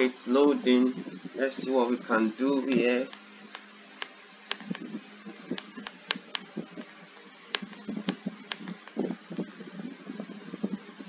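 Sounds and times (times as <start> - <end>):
steady low hum: 0.0 - 11.0
computer mouse clicking: 3.1 - 4.8, 5.5 - 6.5, 7.5 - 9.0.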